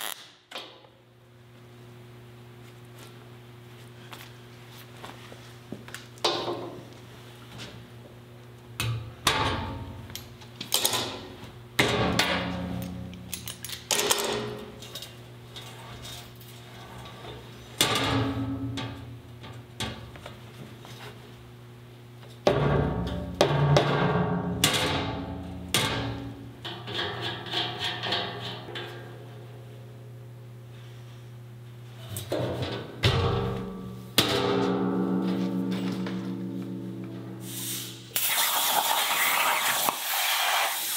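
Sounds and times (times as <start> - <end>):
steady low hum: 0.0 - 38.2.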